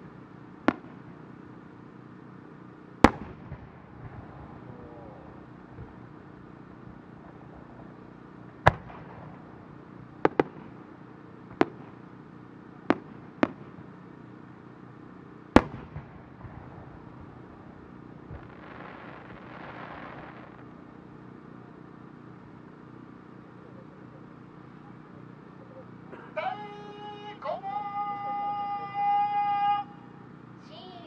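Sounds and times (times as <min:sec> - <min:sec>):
soft hiss: 0:00.0 - 0:25.2
firework shells bursting: 0:03.0 - 0:10.8, 0:15.5 - 0:20.8.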